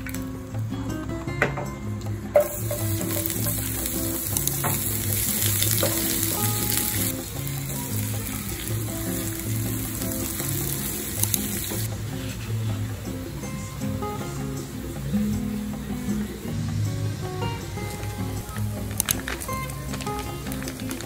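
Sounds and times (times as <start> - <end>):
background music: 0.0 - 21.0
onions sizzling in hot oil: 2.4 - 11.9.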